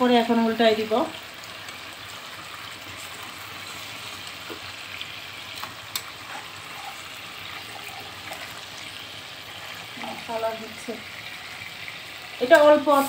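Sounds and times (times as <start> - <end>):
chicken sizzling in oil: 0.0 - 13.0.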